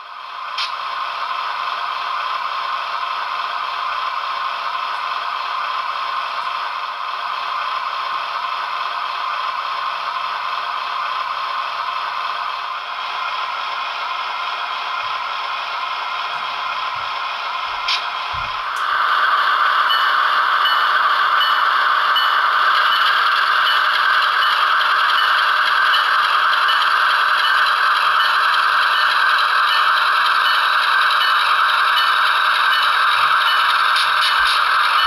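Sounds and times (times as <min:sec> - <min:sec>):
model train whirring rattle: 0:17.9 - 0:35.0.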